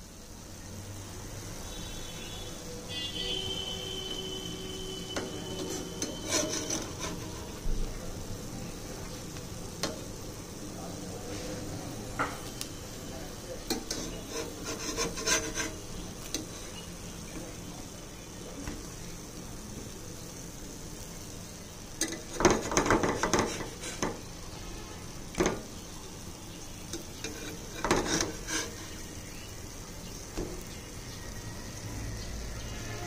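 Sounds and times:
pancakes sizzling on iron pan: 0:00.0 - 0:33.0
metal spatula scraping pan: 0:04.0 - 0:07.7, 0:13.6 - 0:17.6, 0:22.0 - 0:24.3, 0:26.9 - 0:29.2.

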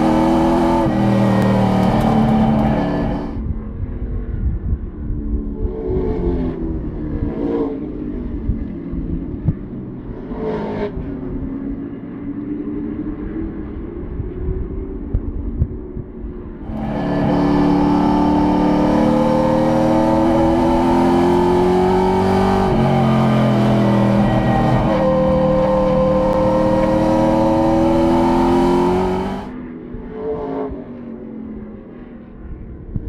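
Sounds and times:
race car engine revving: 0:00.0 - 0:03.4, 0:16.7 - 0:29.5.

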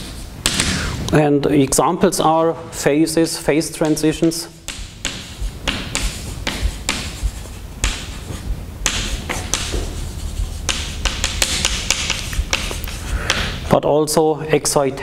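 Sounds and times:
chalk tapping and scratching on blackboard: 0:00.0 - 0:00.7, 0:03.7 - 0:13.7.

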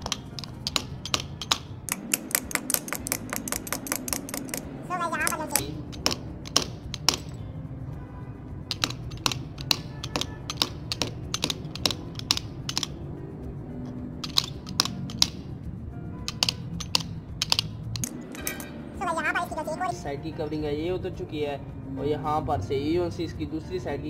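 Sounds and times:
hammer tapping metal casing: 0:00.0 - 0:07.4, 0:08.7 - 0:13.0, 0:13.8 - 0:15.5, 0:16.2 - 0:18.7.

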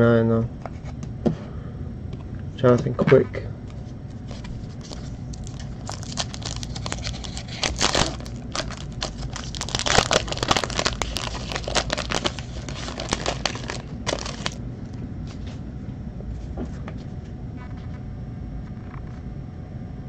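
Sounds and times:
foil wrapper crinkling and tearing: 0:04.3 - 0:14.6.

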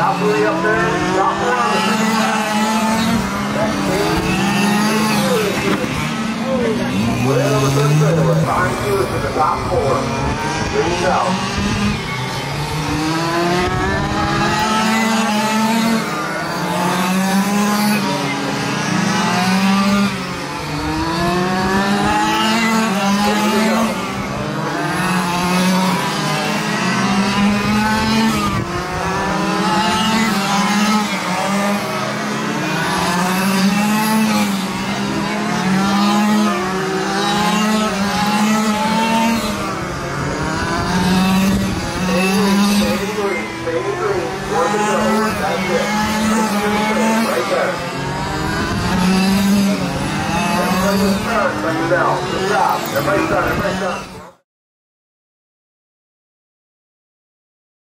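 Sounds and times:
rc car engines revving: 0:00.0 - 0:54.4.

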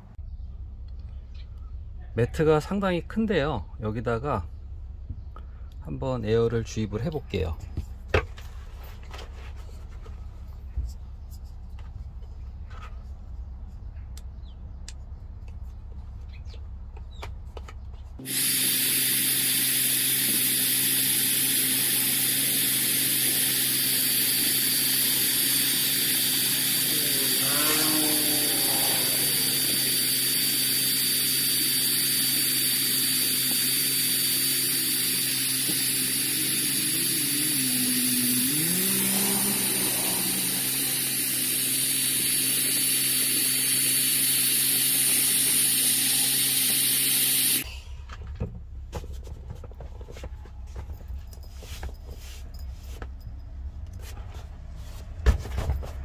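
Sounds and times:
air blower motor whine: 0:18.2 - 0:48.2.

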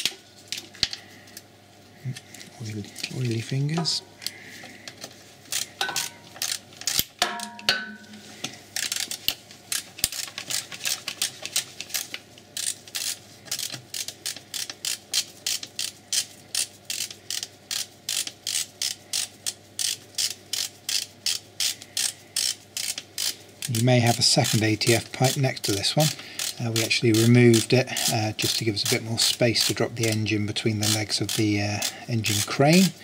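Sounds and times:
ratchet clicking: 0:05.5 - 0:07.1, 0:12.6 - 0:24.6, 0:26.4 - 0:32.9.

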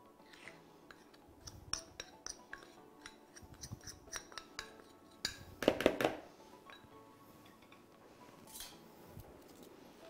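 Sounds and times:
metal spoon scraping ceramic plate: 0:08.5 - 0:08.8.

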